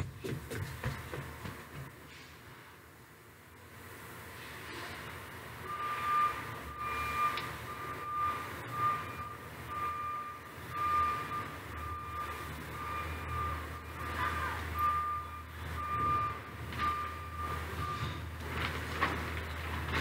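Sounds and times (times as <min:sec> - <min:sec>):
low engine rumble: 0:00.0 - 0:20.0
reversing alarm beeps: 0:05.6 - 0:18.3.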